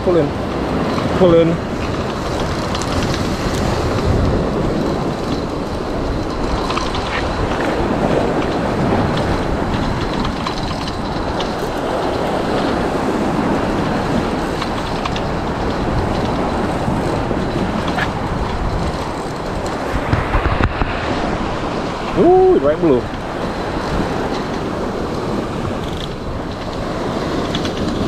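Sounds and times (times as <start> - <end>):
surf rushing: 0.0 - 28.0
wind on microphone: 0.0 - 28.0
fishing reel clicking: 25.3 - 26.2.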